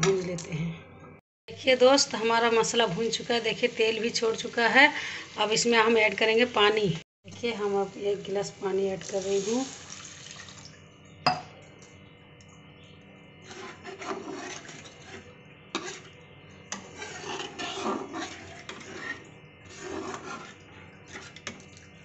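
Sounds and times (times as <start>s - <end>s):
spatula scraping in gravy: 13.4s - 21.6s.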